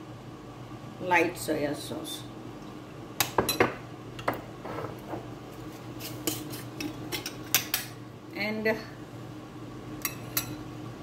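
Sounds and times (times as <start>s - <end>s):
metal spoon stirring in a bowl: 6.0s - 7.8s.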